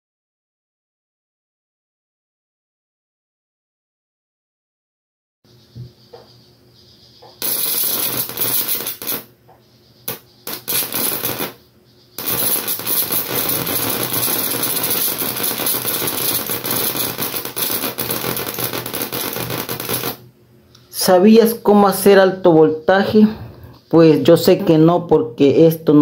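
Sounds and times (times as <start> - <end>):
electric arc crackling: 7.4 - 9.3, 10.1 - 11.6, 12.2 - 20.2.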